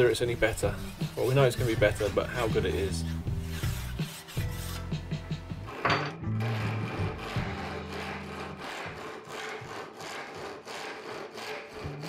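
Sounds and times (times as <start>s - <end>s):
hand saw rasping through wood: 0.0s - 5.1s, 6.4s - 12.0s.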